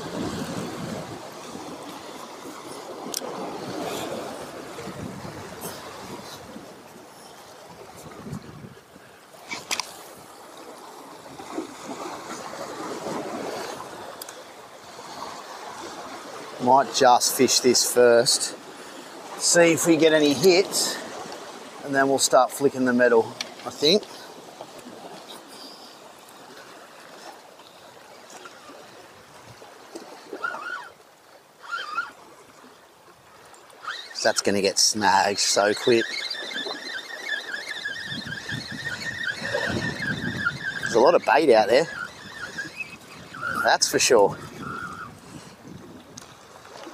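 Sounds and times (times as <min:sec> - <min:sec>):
small waves washing over rocks: 0:00.0 - 0:08.7, 0:09.4 - 0:17.0
sea water washing over rocks: 0:00.0 - 0:46.9.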